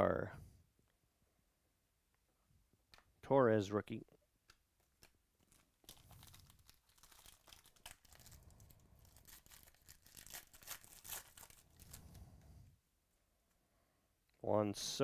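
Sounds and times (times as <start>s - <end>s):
foil wrapper tearing and crinkling: 4.9s - 12.2s.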